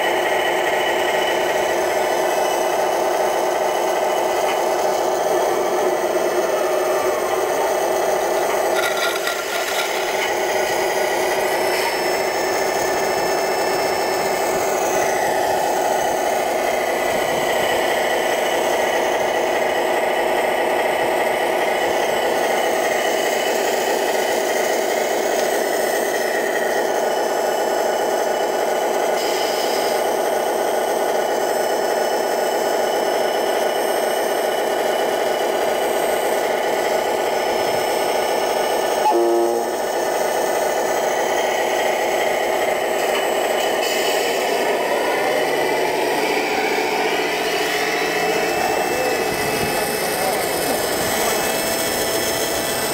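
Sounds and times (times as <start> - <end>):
toy wheel loader mechanical whir: 8.0 - 10.4.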